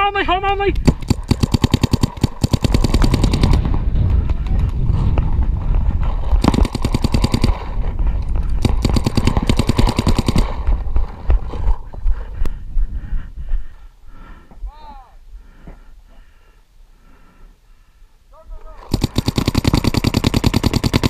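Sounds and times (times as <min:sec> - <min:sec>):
paintball marker rapid fire: 0:00.8 - 0:04.6, 0:06.4 - 0:07.9, 0:08.5 - 0:10.8, 0:18.9 - 0:21.0
faint distant paintball shots: 0:00.8 - 0:04.8, 0:06.2 - 0:11.2, 0:18.9 - 0:21.0.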